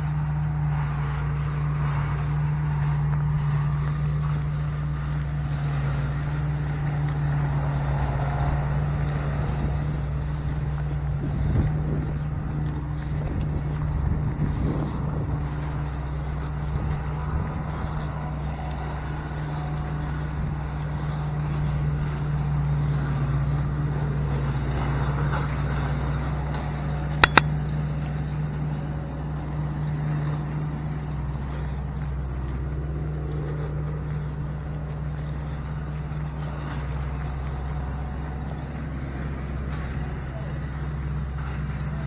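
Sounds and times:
vehicle engine running: 0:00.0 - 0:42.0
sharp clicks: 0:27.2 - 0:27.5.

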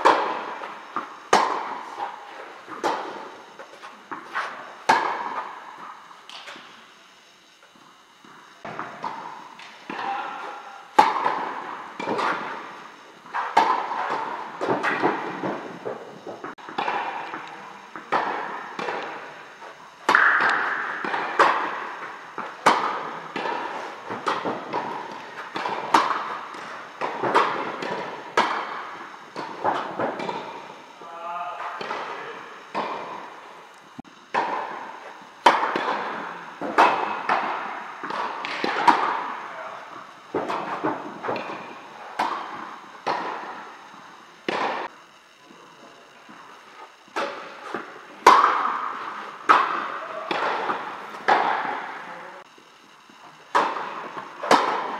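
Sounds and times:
racket striking tennis ball: 0:00.0 - 0:06.6, 0:08.6 - 0:30.7, 0:34.3 - 0:39.5, 0:40.3 - 0:43.7, 0:44.5 - 0:44.9, 0:47.1 - 0:52.0, 0:53.5 - 0:54.9
tennis ball bouncing: 0:00.0 - 0:06.6, 0:08.2 - 0:30.7, 0:34.3 - 0:39.4, 0:44.4 - 0:44.9, 0:47.1 - 0:52.0, 0:53.5 - 0:54.9.

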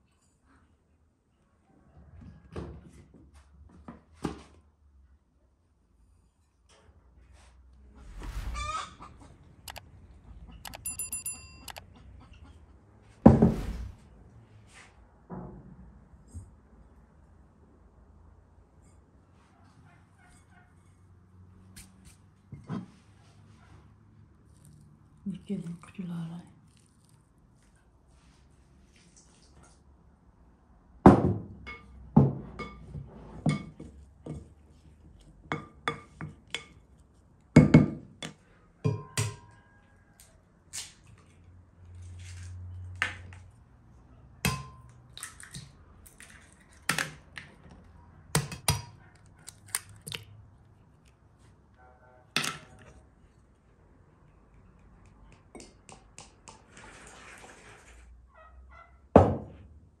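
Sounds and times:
spoon clinking in glass bowl: 0:10.7 - 0:11.8
eggs cracking: 0:49.4 - 0:50.4.

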